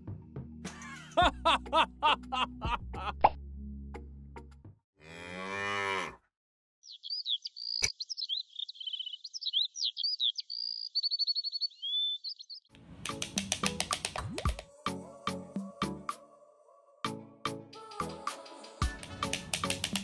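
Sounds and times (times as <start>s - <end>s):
cow mooing: 5.0s - 6.3s
songbird chirping and trilling: 6.8s - 12.7s
sharp taps and clicks: 13.0s - 14.7s, 18.8s - 20.0s.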